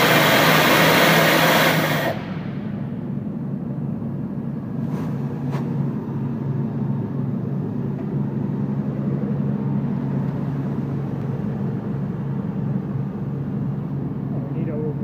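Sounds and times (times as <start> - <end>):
air compressor engine running: 0.0 - 15.0.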